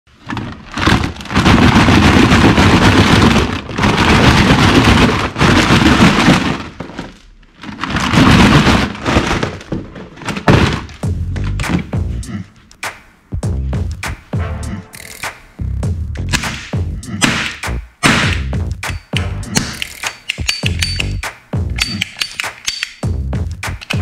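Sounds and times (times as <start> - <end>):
plastic toys rattling in a box: 0.1 - 11.0.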